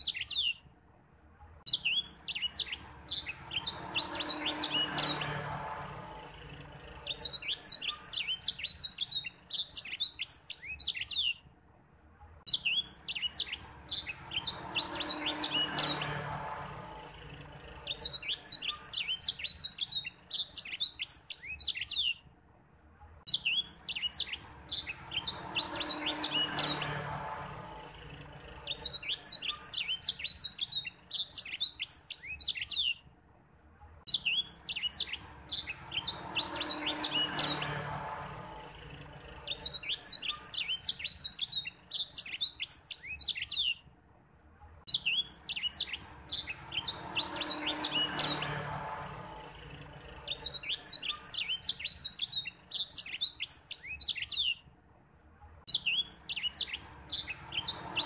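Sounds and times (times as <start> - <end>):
bird twittering song: 0.0 - 0.7, 1.5 - 5.8, 6.4 - 11.5, 12.3 - 22.3, 23.0 - 33.1, 34.0 - 43.9, 44.8 - 54.7, 55.6 - 58.0.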